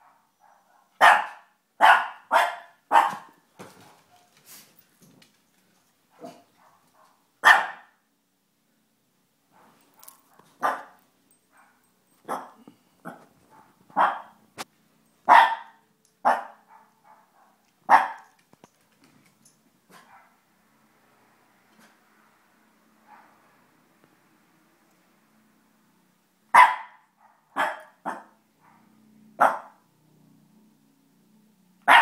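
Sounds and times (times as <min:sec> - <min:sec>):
puppy barking: 0:00.0 - 0:04.4, 0:06.2 - 0:08.0, 0:09.6 - 0:14.4, 0:15.3 - 0:18.4, 0:19.9 - 0:20.4, 0:26.5 - 0:29.8.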